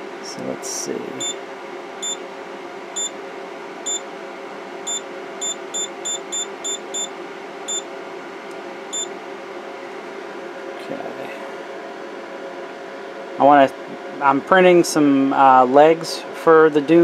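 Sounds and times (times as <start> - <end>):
steady hum: 0.0 - 17.0
touchscreen beeps: 4.9 - 7.1.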